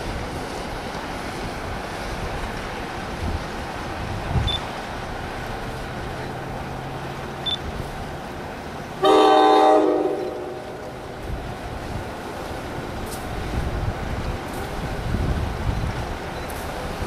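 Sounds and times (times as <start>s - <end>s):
wind noise: 1.3s - 5.3s, 11.1s - 17.0s
train horn blast: 9.0s - 10.8s.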